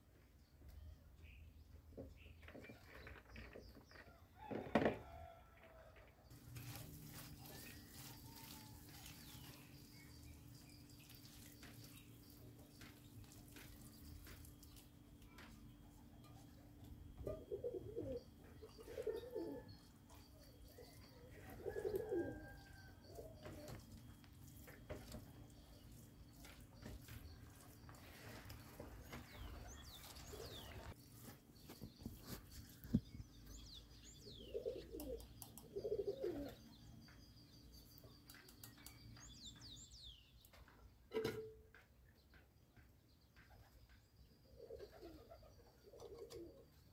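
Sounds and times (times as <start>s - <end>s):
small birds chirping: 6.4s - 40.9s
doves cooing: 16.9s - 19.9s, 20.6s - 23.9s, 34.3s - 36.7s, 44.5s - 46.9s.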